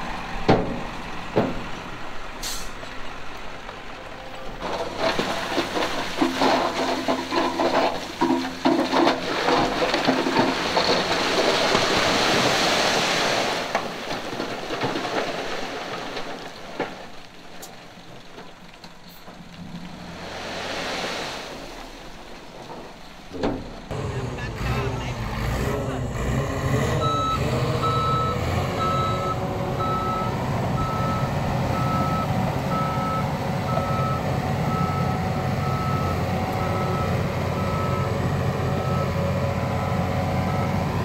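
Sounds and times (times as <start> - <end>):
stones rushing and tumbling: 3.5 - 20.8
heavy machine engine running: 23.6 - 41.0.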